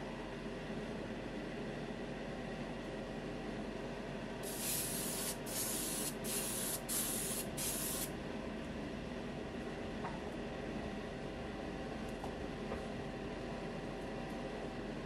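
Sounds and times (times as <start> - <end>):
airbrush spraying hiss: 4.4 - 8.1.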